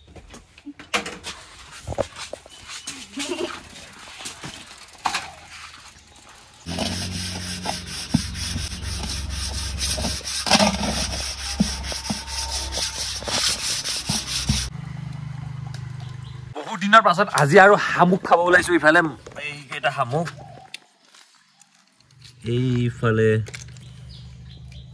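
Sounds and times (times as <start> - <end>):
metal pot scrubbed by hand: 6.7 - 14.7.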